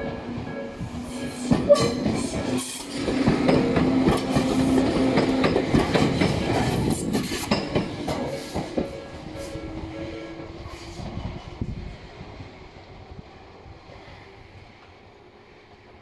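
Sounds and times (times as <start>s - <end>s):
train wheels clacking on rail joints: 0.0s - 9.6s
train steady hum: 0.0s - 16.0s.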